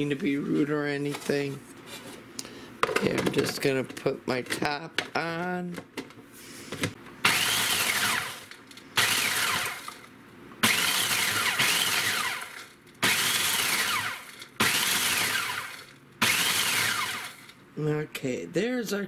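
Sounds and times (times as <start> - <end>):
food processor motor whine: 7.2 - 17.6.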